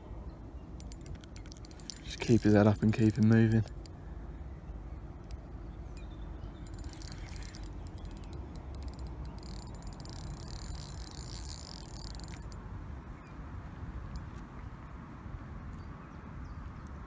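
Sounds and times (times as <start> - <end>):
fishing reel ticking: 0.8 - 4.0, 5.2 - 12.6.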